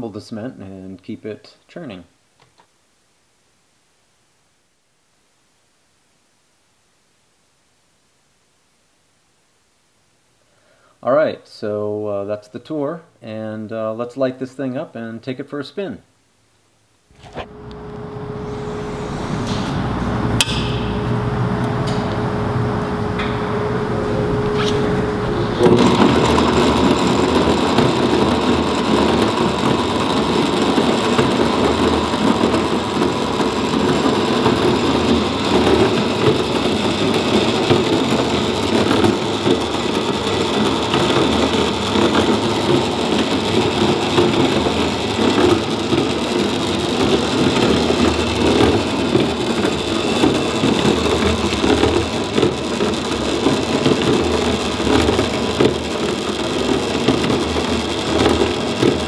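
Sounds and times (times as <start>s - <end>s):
faint motor whine: 17.1s - 44.7s
cement mixer clattering: 18.5s - 59.0s.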